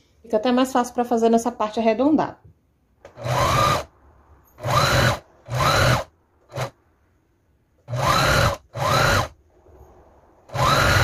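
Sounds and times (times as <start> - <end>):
sewing machine stitching: 3.1 - 3.9, 4.6 - 6.8, 7.8 - 9.4, 10.5 - 11.0.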